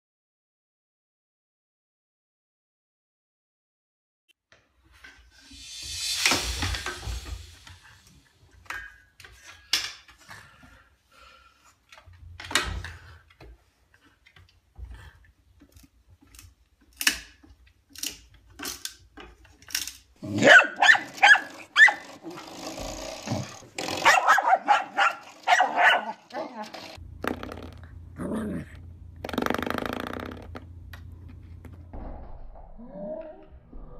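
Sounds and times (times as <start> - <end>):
dog barking and growling: 20.2 - 22.7, 23.3 - 26.8, 28.2 - 28.8.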